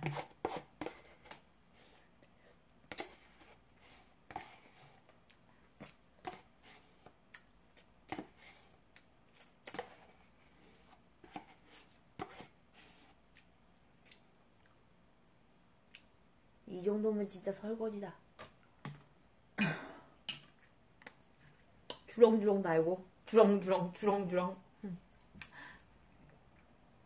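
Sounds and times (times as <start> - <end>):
metal spoon scraping paper tub: 0.0 - 1.4.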